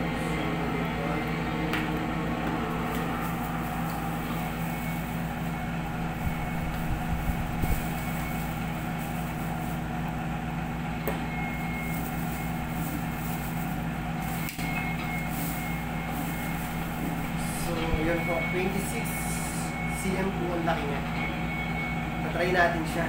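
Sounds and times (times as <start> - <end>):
faint high whine: 0.0 - 23.0
low mechanical hum: 0.0 - 23.0
plastic packaging rustling: 2.8 - 10.4, 11.3 - 19.3.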